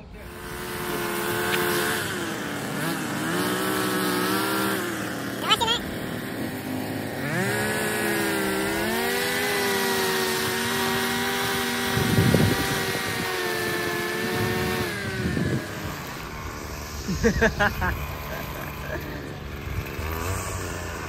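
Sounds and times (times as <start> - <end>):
string trimmer engine revving: 0.0 - 21.0
trimmer line cutting grass: 0.0 - 21.0.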